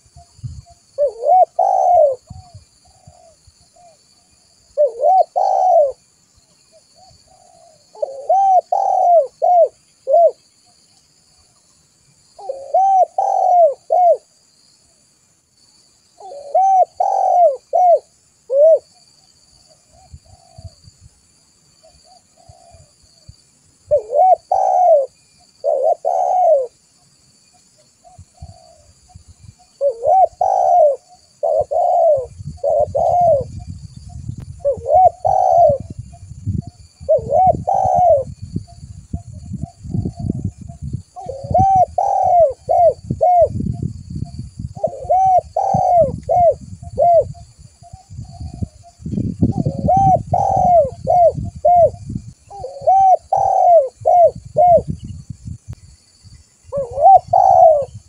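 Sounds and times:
dove cooing: 1.0s - 6.0s, 7.0s - 10.4s, 12.4s - 14.4s, 16.2s - 19.0s, 19.9s - 20.8s, 21.8s - 22.9s, 23.9s - 26.8s, 28.0s - 29.0s, 29.7s - 33.7s, 34.6s - 36.0s, 36.9s - 38.4s, 41.2s - 43.8s, 44.7s - 55.0s, 56.7s - 58.0s.

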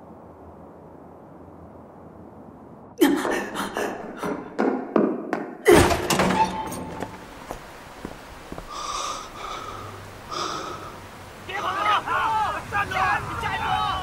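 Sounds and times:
person panting: 3.0s - 4.6s, 8.7s - 11.0s.

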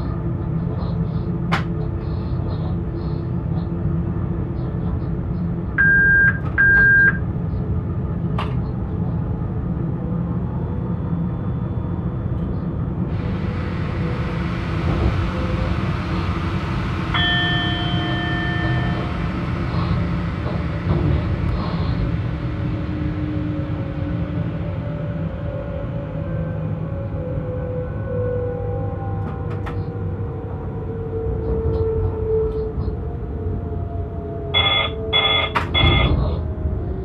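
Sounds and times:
electric locomotive rumble: 0.0s - 37.0s
short electronic beeps: 5.8s - 7.2s, 34.6s - 36.1s
steady tone: 17.0s - 20.4s.

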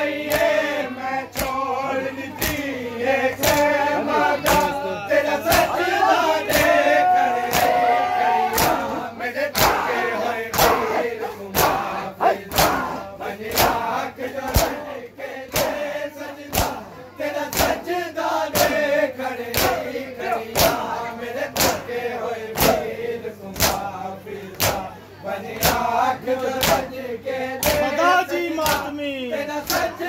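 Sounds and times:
crowd of men shouting and chanting: 0.0s - 30.0s
hands slapping chests: 1.3s - 1.6s, 3.4s - 3.7s, 5.4s - 5.7s, 6.4s - 6.8s, 7.4s - 7.8s, 8.5s - 8.8s, 12.5s - 12.9s, 16.5s - 16.8s, 17.5s - 17.8s.

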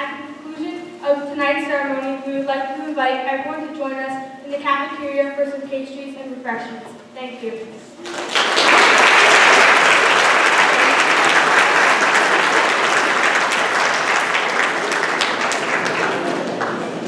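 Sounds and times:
audience applauding: 8.0s - 17.0s.

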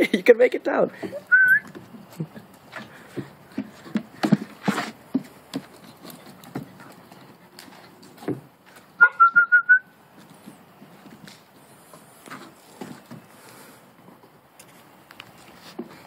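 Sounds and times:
dog claws tapping on steps: 1.0s - 8.8s
high whistled notes: 1.3s - 1.7s, 9.0s - 9.9s.

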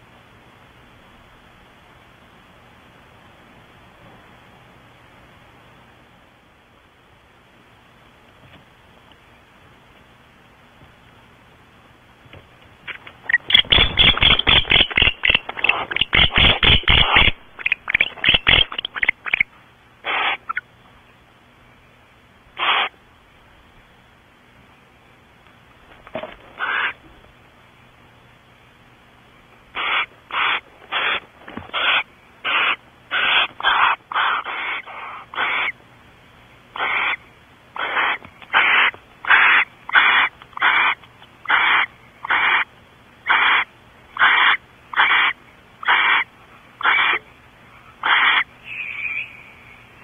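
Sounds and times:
owl hissing screeches: 13.3s - 20.6s, 22.6s - 23.0s, 26.6s - 27.0s, 29.8s - 35.8s, 36.8s - 37.2s, 37.8s - 47.2s, 48.0s - 49.8s.

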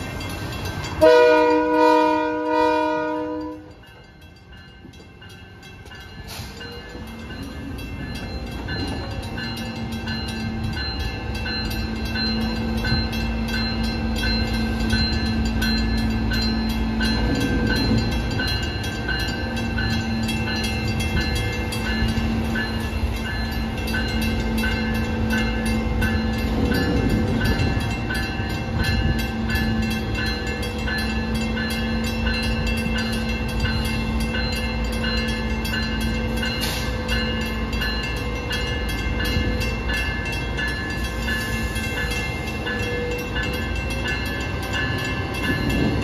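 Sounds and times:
crossing bell dinging: 0.0s - 46.0s
freight train rumbling: 0.0s - 46.0s
locomotive horn blast: 1.0s - 3.8s.

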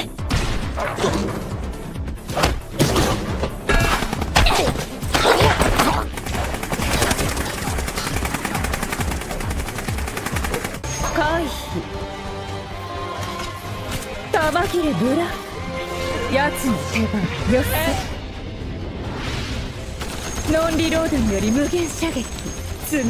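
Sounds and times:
background music: 0.0s - 23.0s
gunshots: 2.6s - 10.8s
machine-gun fire: 5.8s - 10.8s.

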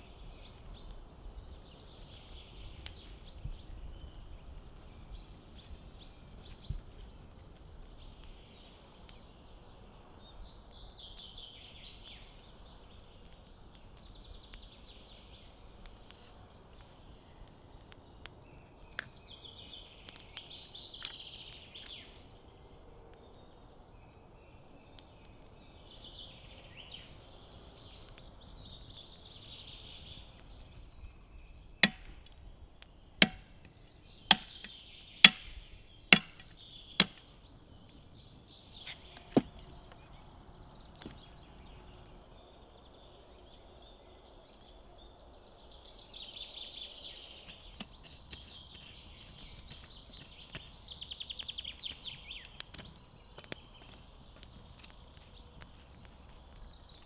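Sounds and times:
birds chirping: 0.0s - 57.0s
axe chopping bone: 31.8s - 32.3s, 33.2s - 33.6s, 34.3s - 35.6s, 36.2s - 37.2s.

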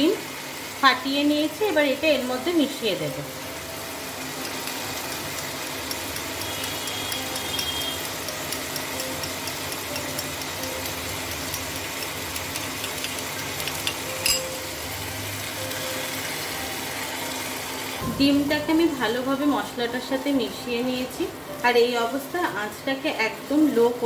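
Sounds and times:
paste sizzling in a pan: 0.0s - 18.0s
spoon beating eggs in a bowl: 4.4s - 14.5s.

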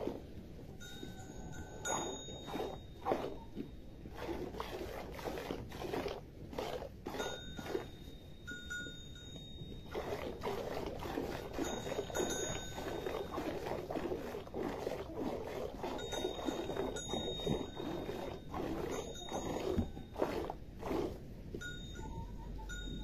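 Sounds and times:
faint high ringing tones: 0.7s - 4.0s, 7.2s - 10.0s, 16.0s - 20.2s, 21.6s - 23.0s
milk squirting into enamel bowl: 1.9s - 7.9s, 9.9s - 21.2s.

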